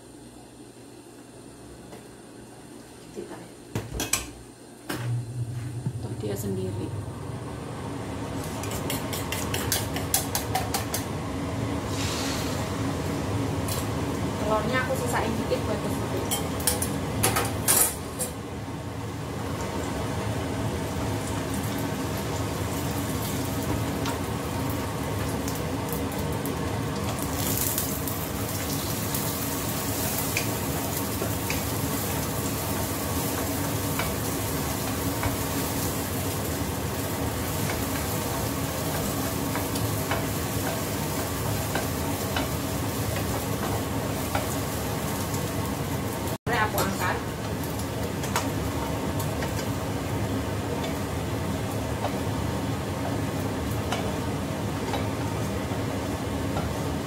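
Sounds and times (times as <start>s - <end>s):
egg sizzling in hot oil: 8.3s - 14.4s, 19.1s - 57.0s
wooden spatula scraping and tapping: 8.6s - 11.1s, 37.6s - 44.6s.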